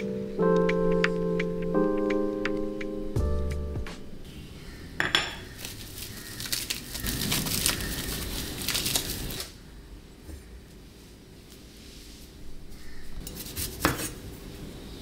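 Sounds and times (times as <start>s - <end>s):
music track: 0.0s - 4.5s
plastic bag crinkling: 5.4s - 9.5s.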